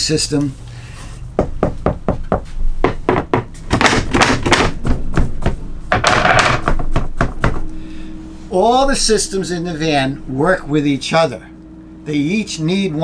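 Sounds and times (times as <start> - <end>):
knocks on wooden ceiling boards: 1.4 - 7.6.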